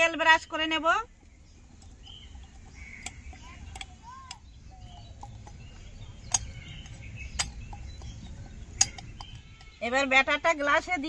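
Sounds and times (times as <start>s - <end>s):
light clicks and taps on glass: 1.2s - 9.8s
faint bird chirps: 1.2s - 10.2s.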